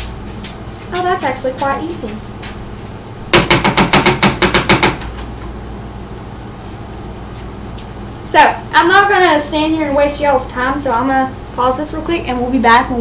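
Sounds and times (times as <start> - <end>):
brush scrubbing corn: 8.8 - 10.5.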